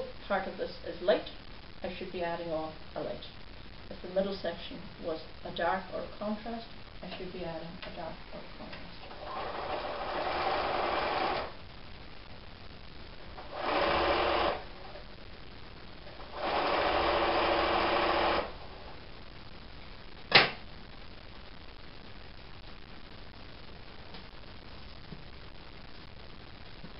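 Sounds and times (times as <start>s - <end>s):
sewing machine stitching: 9.1s - 11.5s, 13.4s - 14.6s, 16.3s - 18.5s
sharp click: 20.3s - 20.6s.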